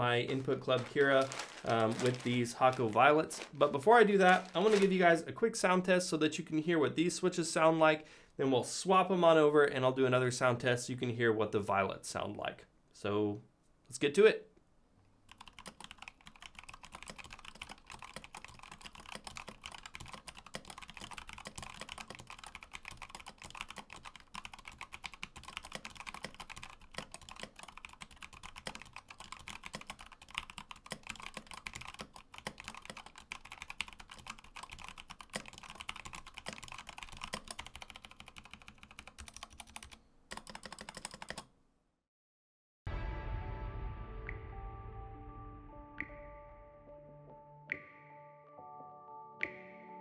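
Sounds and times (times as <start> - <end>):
fast typing on mechanical keyboard: 15.3 - 41.5.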